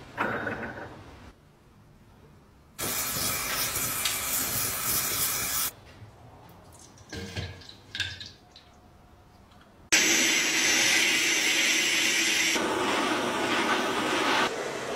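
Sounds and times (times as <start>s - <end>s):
spray-like hiss: 2.8s - 5.7s.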